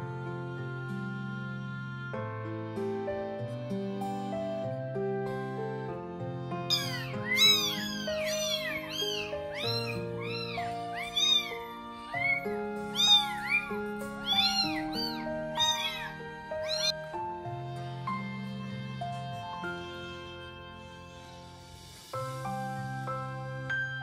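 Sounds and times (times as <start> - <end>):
background music with held notes: 0.0 - 24.0
kittens mewing: 6.7 - 17.0.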